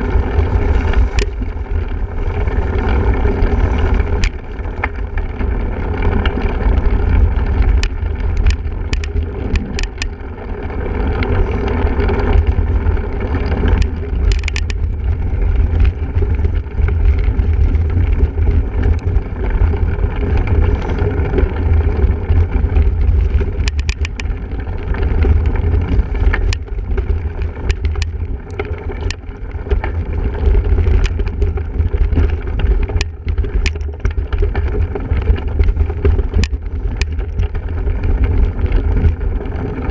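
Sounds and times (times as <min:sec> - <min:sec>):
bike rattling over rough ground: 0:00.0 - 0:39.9
steady low rumble: 0:00.0 - 0:39.9
wind buffeting microphone: 0:00.0 - 0:39.9
sharp clicks and knocks: 0:07.6 - 0:10.2, 0:13.4 - 0:15.0, 0:22.7 - 0:24.4, 0:25.0 - 0:39.2.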